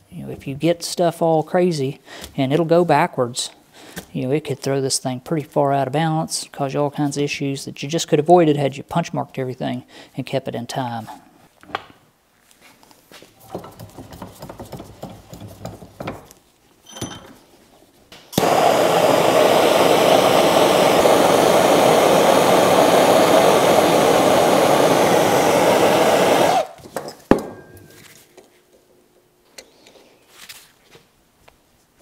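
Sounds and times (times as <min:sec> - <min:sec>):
gas torch flame rushing: 0:18.4 - 0:26.8.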